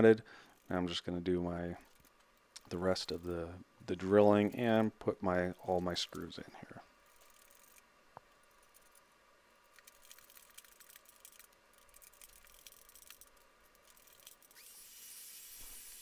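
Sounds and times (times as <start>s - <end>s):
handheld vacuum whine: 14.6s - 16.0s.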